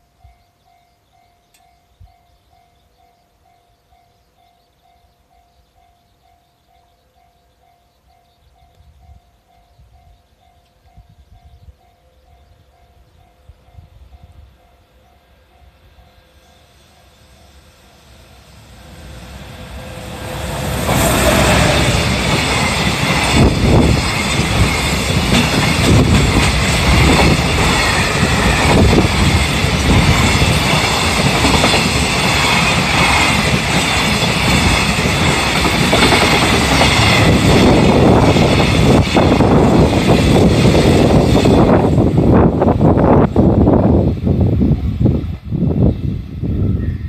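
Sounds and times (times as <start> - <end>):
electric locomotive passing: 0.0 - 47.0
level-crossing alarm dinging: 14.3 - 39.0
train wheels clattering over joints: 19.2 - 41.9.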